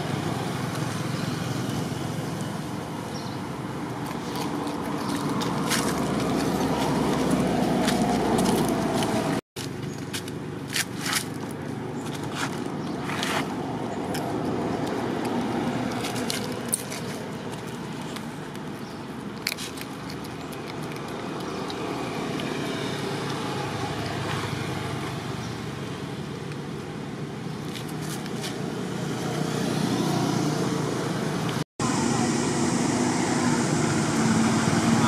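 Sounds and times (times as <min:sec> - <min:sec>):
low outdoor background noise: 0:00.0 - 0:35.0
sharp clicks and crackles: 0:14.1 - 0:22.6.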